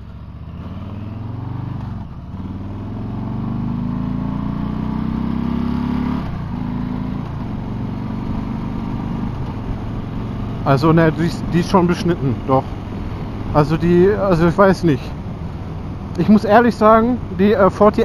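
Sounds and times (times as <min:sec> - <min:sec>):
motorcycle engine accelerating: 0:00.0 - 0:14.4.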